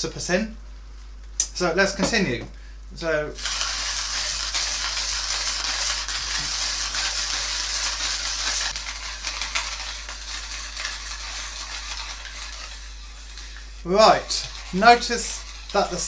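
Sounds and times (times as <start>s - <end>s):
hand coffee grinder crunching beans: 3.4s - 16.0s.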